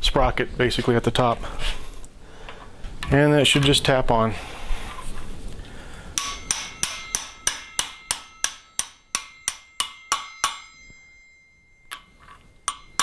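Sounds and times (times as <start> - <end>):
hammer tapping metal sleeve: 6.2 - 11.1, 11.9 - 13.0.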